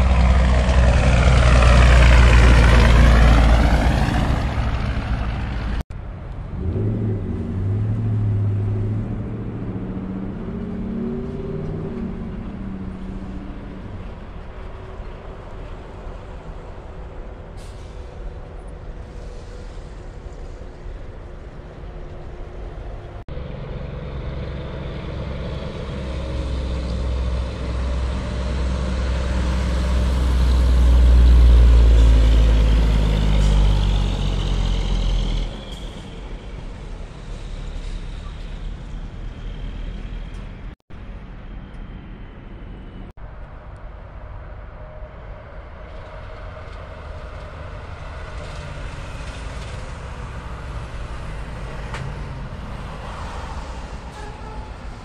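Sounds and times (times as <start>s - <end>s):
road noise of passing trucks: 0.0s - 55.0s
truck diesel engine passing: 0.0s - 55.0s.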